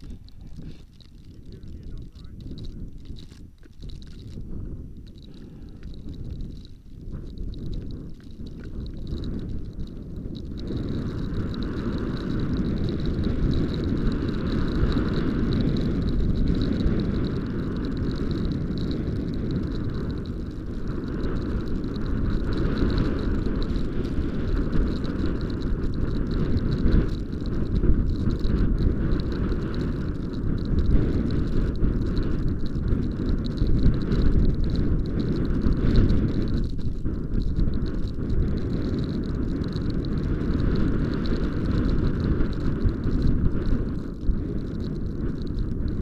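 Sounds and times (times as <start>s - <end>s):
wind buffeting microphone: 0.0s - 46.0s.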